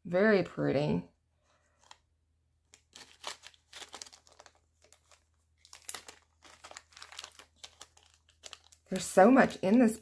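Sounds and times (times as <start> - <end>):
plastic bags crinkling: 2.7 - 10.0.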